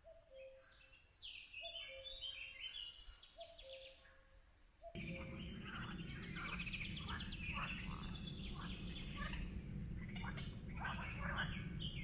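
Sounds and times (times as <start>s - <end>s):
steady low rush: 5.0s - 12.0s.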